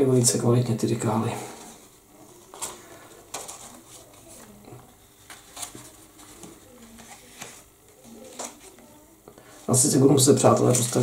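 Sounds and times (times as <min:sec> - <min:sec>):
paper rustling: 0:01.5 - 0:04.6, 0:05.2 - 0:08.9, 0:10.3 - 0:11.0.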